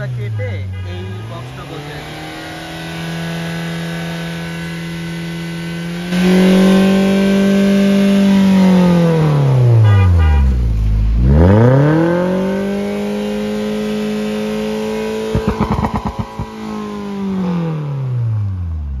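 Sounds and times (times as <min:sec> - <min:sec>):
car engine revving: 0:01.2 - 0:19.0
exhaust pulses: 0:11.2 - 0:19.0.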